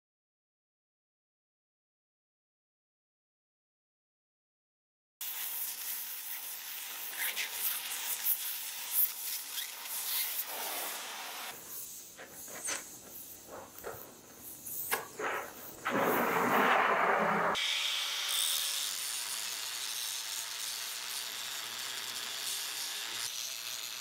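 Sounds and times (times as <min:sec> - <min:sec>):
gas torch flame hissing: 0:05.2 - 0:17.6.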